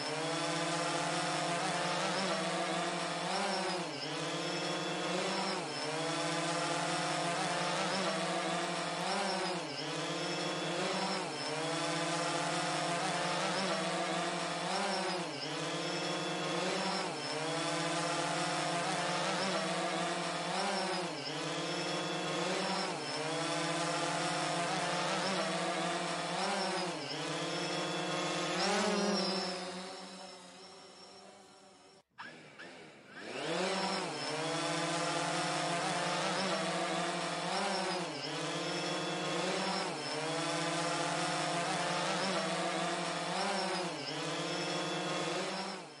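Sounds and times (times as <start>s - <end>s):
drone motor whine: 0.0s - 46.0s.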